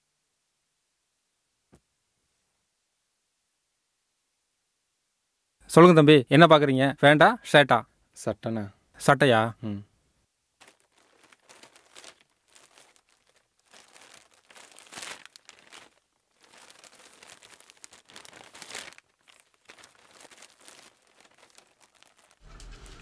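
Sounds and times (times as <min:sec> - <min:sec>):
plastic wrapping crinkling: 0:10.6 - 0:23.0.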